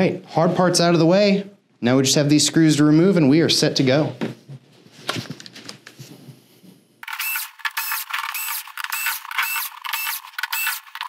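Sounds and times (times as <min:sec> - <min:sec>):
screwdriver whirring and clicking: 0:07.0 - 0:11.0.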